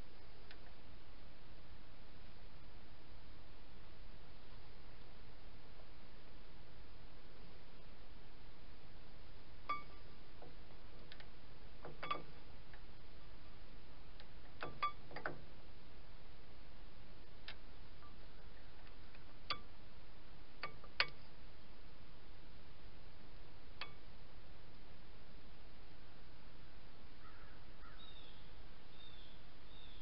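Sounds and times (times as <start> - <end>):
steady hiss: 0.0 - 27.2.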